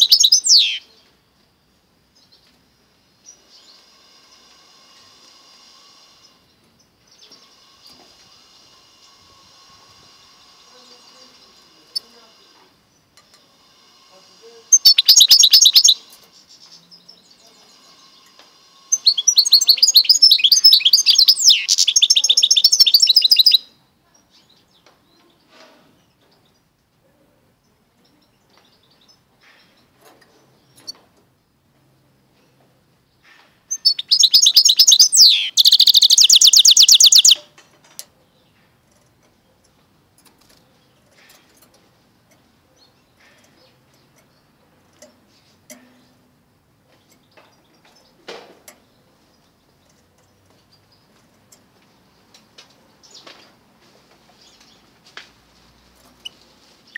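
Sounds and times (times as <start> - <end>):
bird twittering song: 0.0 - 1.1, 14.7 - 18.3, 18.9 - 26.7, 32.4 - 37.4
bird moving in wire cage: 38.8 - 42.4.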